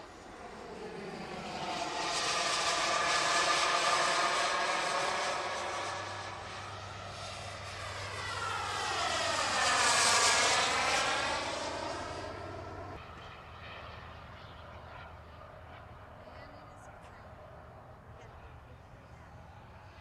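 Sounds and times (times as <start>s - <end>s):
model jet turbine whine: 0.0s - 15.4s.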